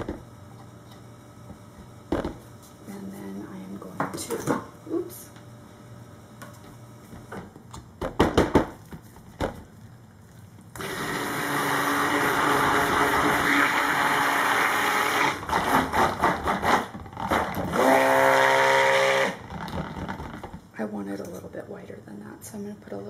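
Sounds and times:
stick blender motor: 10.8 - 20.4.

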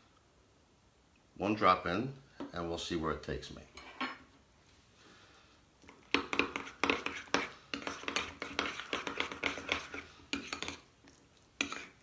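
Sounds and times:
metal spoon scraping glass bowl: 6.3 - 10.9, 11.6 - 12.0.

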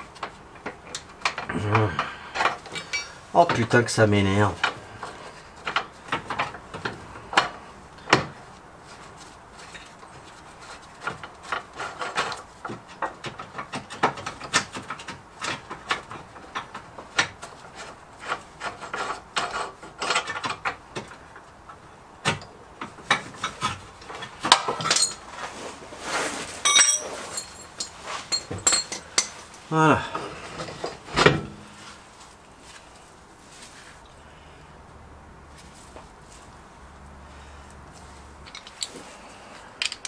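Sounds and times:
hand tools scraping metal: 2.0 - 3.2, 23.2 - 31.0
ringing metallic clink: 26.6 - 27.8.

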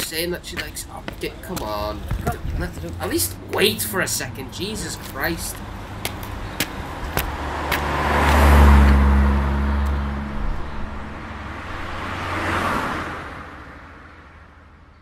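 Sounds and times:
road noise: 0.0 - 15.0
car driving past: 6.8 - 14.7.

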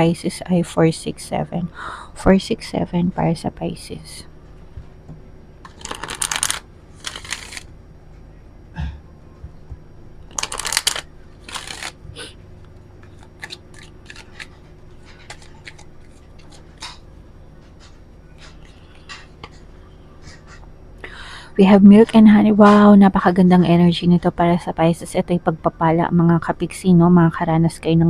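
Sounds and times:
cards riffle-shuffled: 5.7 - 7.7, 10.3 - 12.0, 13.0 - 17.0.

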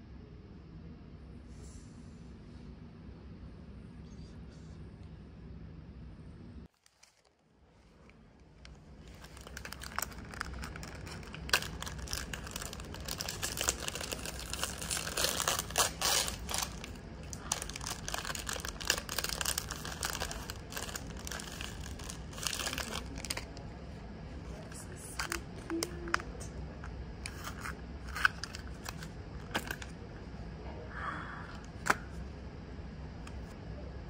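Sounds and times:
plastic wrapper crinkling: 6.7 - 23.7, 24.5 - 26.4, 27.2 - 30.0.

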